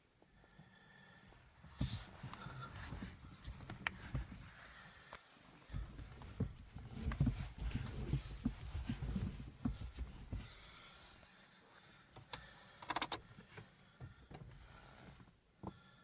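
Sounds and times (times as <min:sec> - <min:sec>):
ignition key clicks: 0:12.3 - 0:13.2.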